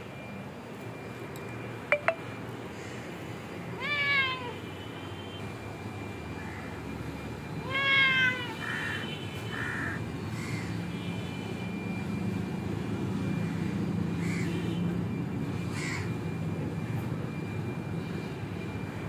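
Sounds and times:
cat meowing: 3.8 - 4.6, 7.6 - 8.8.

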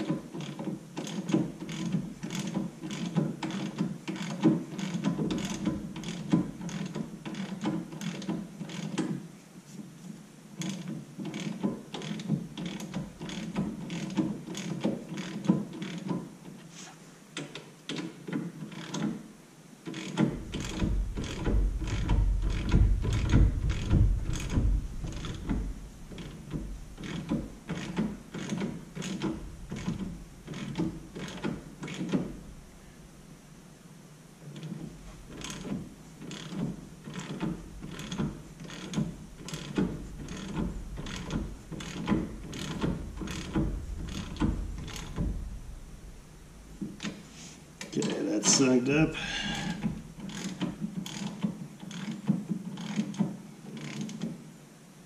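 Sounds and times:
hand ratchet clicking: 0.0 - 9.2, 10.6 - 16.3, 17.4 - 19.2, 19.8 - 32.4, 34.5 - 45.5, 49.4 - 54.3
low rumble: 20.3 - 31.2, 37.6 - 47.8.

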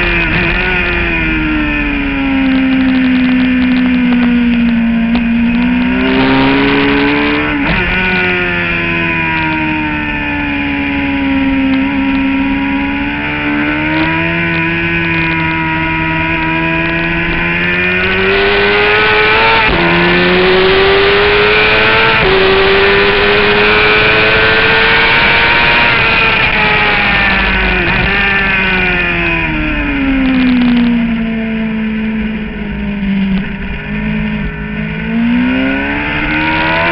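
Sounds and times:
motorcycle engine revving: 0.0 - 36.9.

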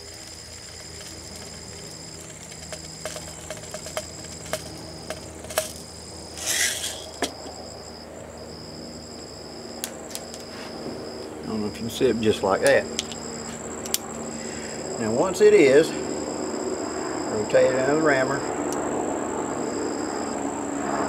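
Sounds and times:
shot pellets clicking and rattling: 0.0 - 7.5
insects chirring: 0.0 - 21.0.

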